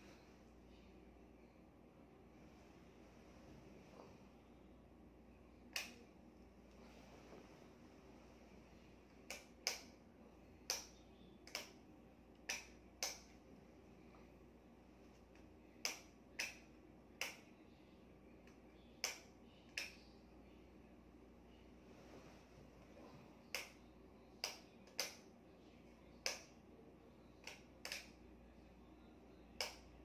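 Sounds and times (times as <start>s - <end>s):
sharp snapping clicks: 5.6s - 6.1s, 9.1s - 10.0s, 10.6s - 13.4s, 15.3s - 17.5s, 18.4s - 20.1s, 23.5s - 23.8s, 24.4s - 25.3s, 26.2s - 26.6s, 27.4s - 28.2s, 29.6s - 30.0s.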